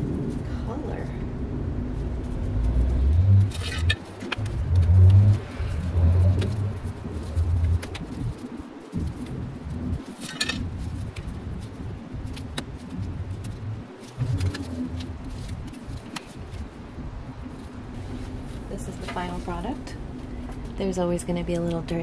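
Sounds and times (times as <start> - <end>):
low hum: 0.0 - 22.0
hands working soil and pebbles: 2.3 - 17.0.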